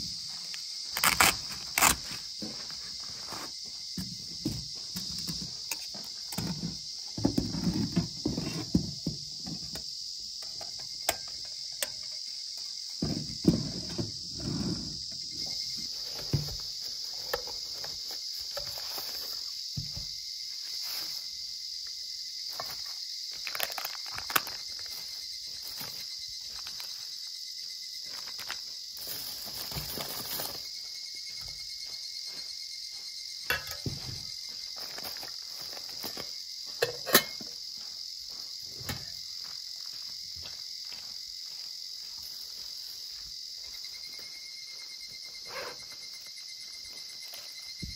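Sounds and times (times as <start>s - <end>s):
high-pitched insect chorus: 0.0s - 47.9s.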